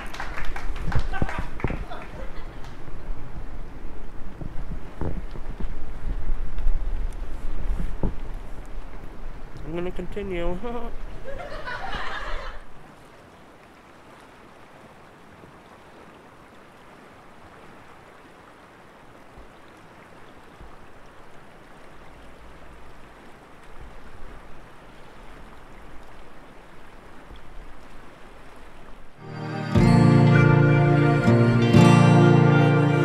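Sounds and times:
wind rumble on microphone: 0.0s - 12.6s
steady outdoor hiss: 0.0s - 33.0s.

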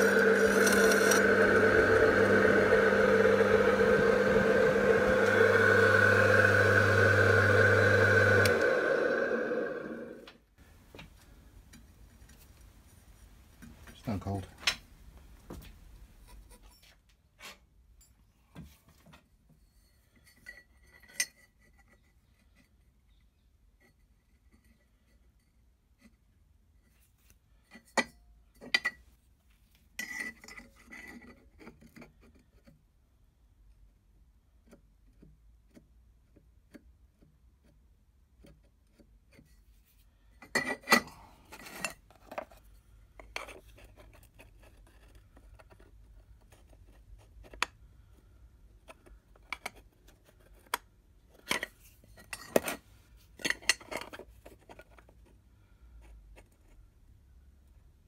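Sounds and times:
steel pieces clinking: 0.0s - 1.2s.

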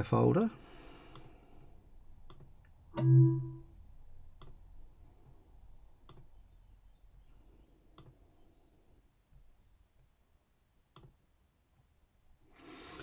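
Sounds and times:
computer mouse clicks: 2.3s - 2.5s, 8.0s - 8.2s
short low tone: 3.0s - 3.7s.

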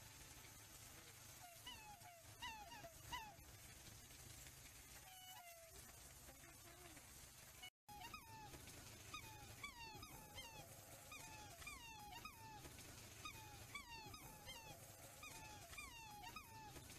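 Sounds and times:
swans calling: 1.3s - 3.5s, 7.9s - 16.9s.

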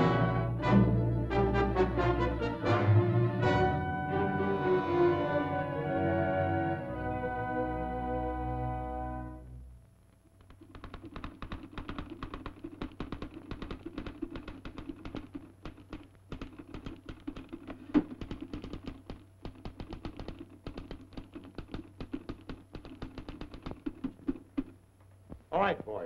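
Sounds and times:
manual typewriter typing: 10.4s - 24.7s.

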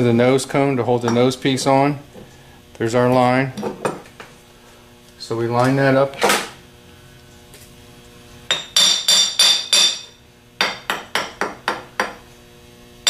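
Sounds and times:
hammer striking metal: 8.5s - 12.2s.

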